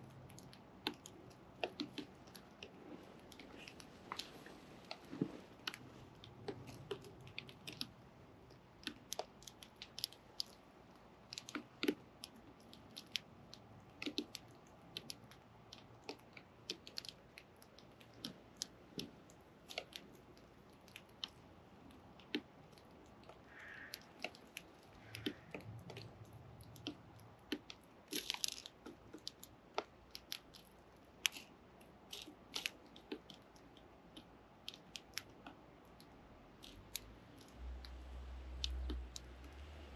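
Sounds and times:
chicks pecking at food clicks: 11.3s - 30.6s.

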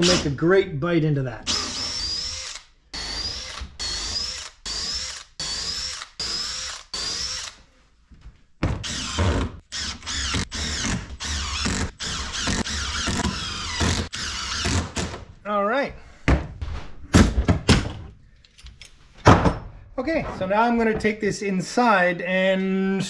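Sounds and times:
impact driver hammering bursts: 8.8s - 15.2s.

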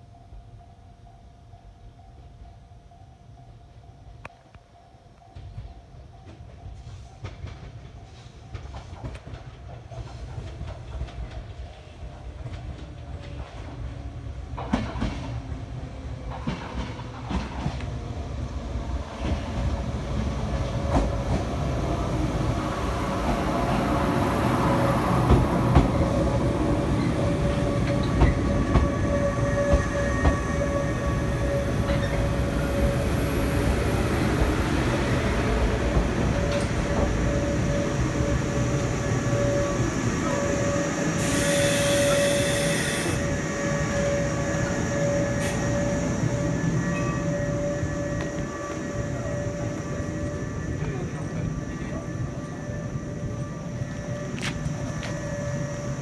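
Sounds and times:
electric train rumble: 0.0s - 56.0s
wheels clacking over rail joints: 14.5s - 15.6s, 16.2s - 18.0s, 25.2s - 30.6s.

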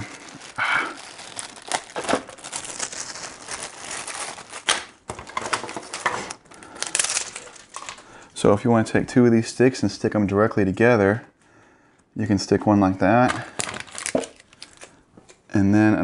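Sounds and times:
plastic bag crinkling: 0.0s - 8.2s, 13.4s - 15.0s.

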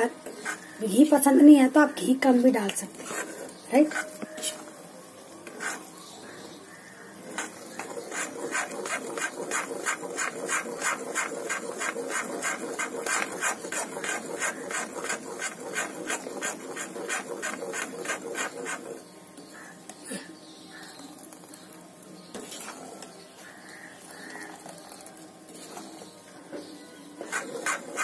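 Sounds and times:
steel spatula scraping a pan: 7.4s - 19.0s, 22.3s - 24.2s, 27.2s - 28.0s
steady sizzle: 20.7s - 26.1s.

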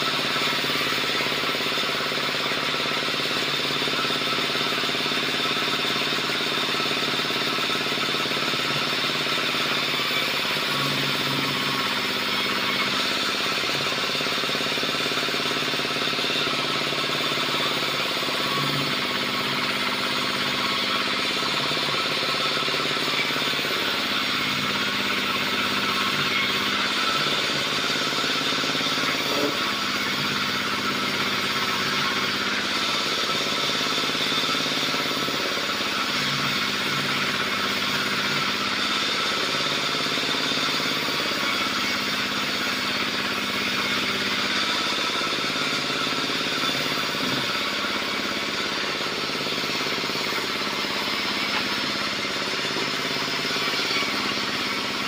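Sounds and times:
sawmill engine running: 0.0s - 55.0s.

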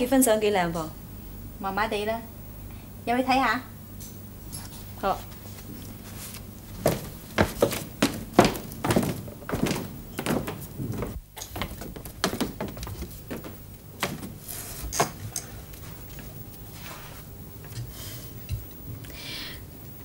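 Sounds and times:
footsteps on floor and steps: 4.8s - 17.2s.

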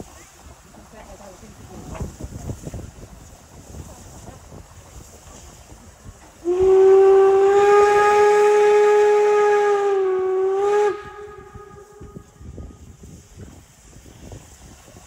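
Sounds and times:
steam hissing: 0.0s - 15.0s
steam whistle blast: 6.4s - 12.9s.

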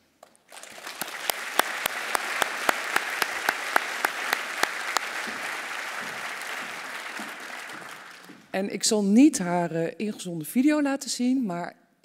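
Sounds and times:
audience applauding: 0.2s - 8.5s
sharp claps close to microphone: 0.2s - 8.5s.

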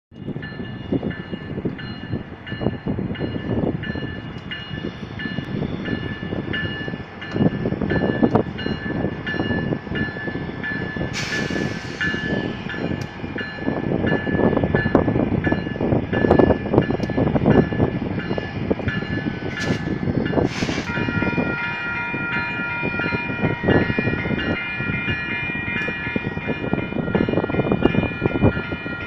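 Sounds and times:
railroad crossing bell dinging: 0.2s - 29.0s
brief hiss: 20.5s - 20.9s.

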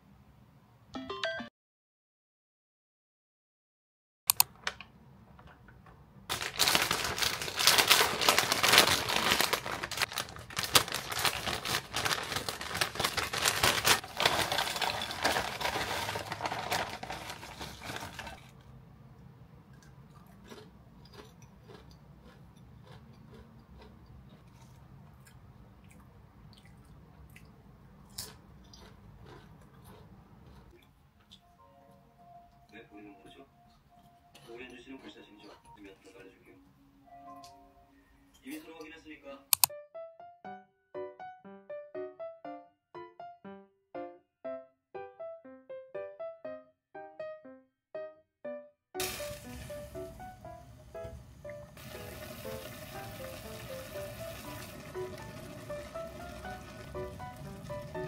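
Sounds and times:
chips rattling from crinkly bag: 6.3s - 18.6s.

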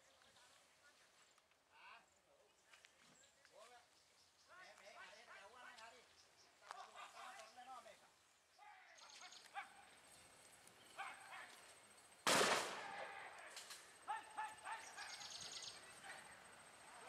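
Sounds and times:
people shouting calls: 4.4s - 8.0s, 8.6s - 10.1s, 10.8s - 11.8s, 12.4s - 17.0s
loud bang with echo: 12.3s - 13.0s.

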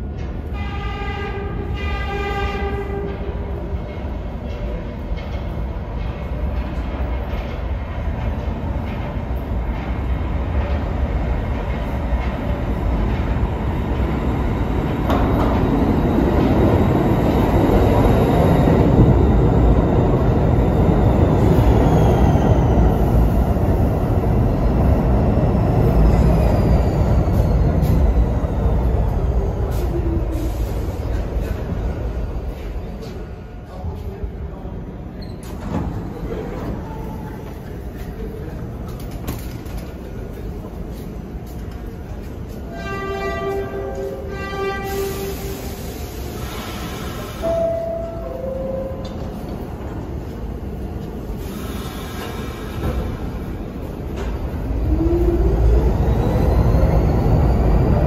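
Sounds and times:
falling whine of slowing train: 0.0s - 58.0s
train rumble: 0.0s - 58.0s
train horn blasts: 0.4s - 3.2s, 42.7s - 45.4s.

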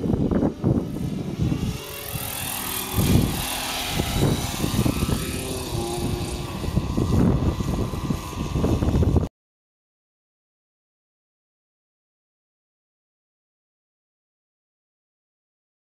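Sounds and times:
rc helicopter rotor and engine: 0.0s - 9.3s.

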